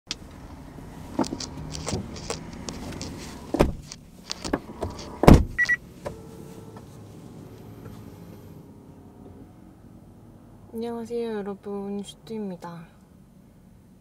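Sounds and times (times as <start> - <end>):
rustling in car seat: 1.0 - 8.6
heavy thump: 5.2 - 6.2.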